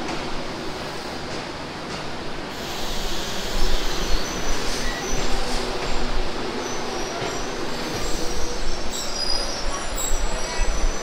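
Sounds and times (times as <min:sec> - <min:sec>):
train coaches noise: 0:00.0 - 0:11.0.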